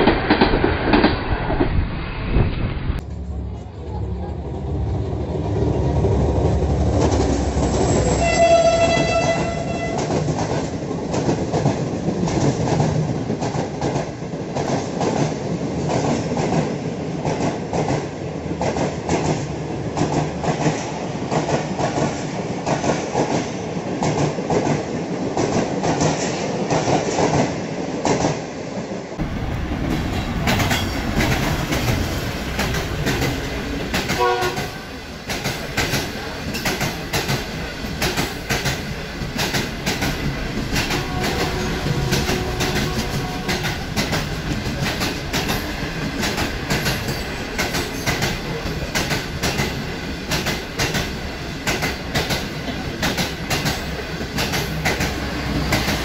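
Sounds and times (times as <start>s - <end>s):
train horn blast: 7.9s - 10.2s, 34.1s - 35.0s, 40.9s - 43.8s
wheels clacking over rail joints: 29.2s - 56.0s.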